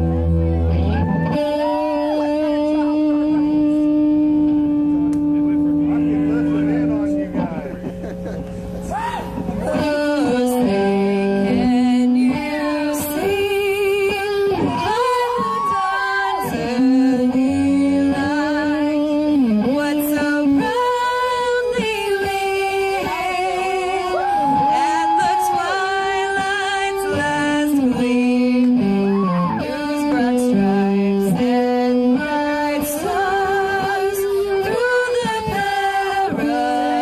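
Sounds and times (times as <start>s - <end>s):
electric guitar: 0.0s - 37.0s
woman singing into microphone: 9.8s - 37.0s.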